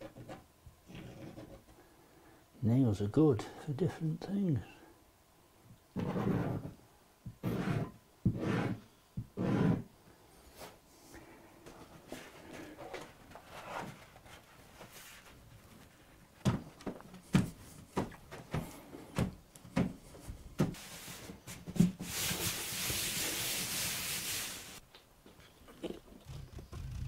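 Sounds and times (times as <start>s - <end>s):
steady hiss: 20.0s - 24.9s.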